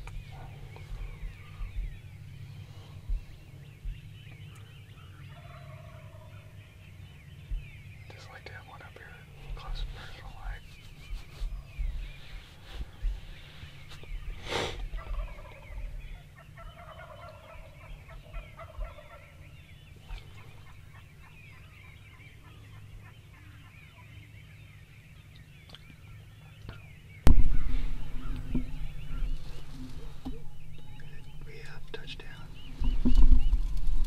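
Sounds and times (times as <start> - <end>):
turkey gobbling: 5.0 - 6.6, 14.2 - 24.6, 27.3 - 34.0
rustling: 27.3 - 34.0.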